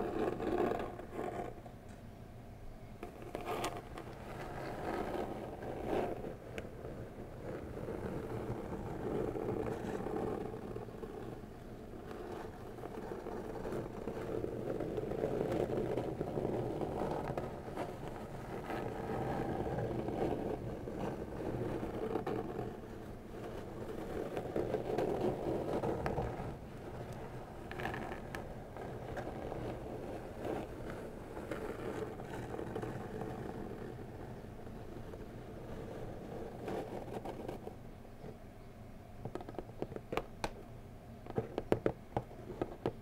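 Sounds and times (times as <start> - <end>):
fingernails scratching cardboard: 12.0 - 34.4.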